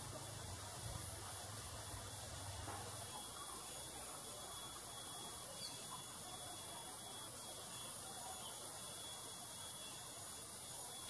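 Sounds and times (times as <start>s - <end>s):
insect drone: 0.0s - 11.0s
faint chirps: 3.1s - 11.0s.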